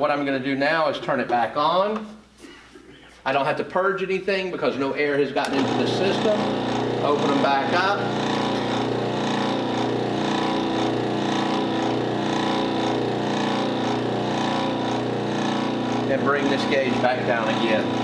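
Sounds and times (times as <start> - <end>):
compressor running steadily: 5.4 - 18.0.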